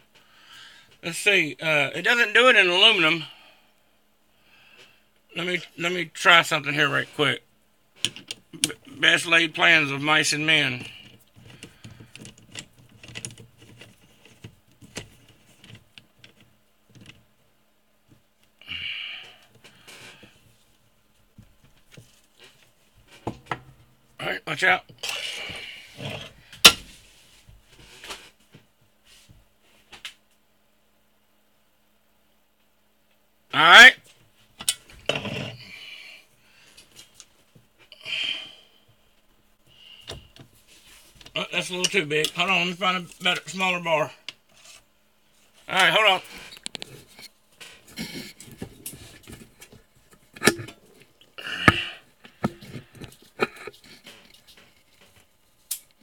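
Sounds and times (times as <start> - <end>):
sharp metal clunk: 26.6 - 26.9, 50.4 - 50.8
metal parts knocking: 50.4 - 50.8.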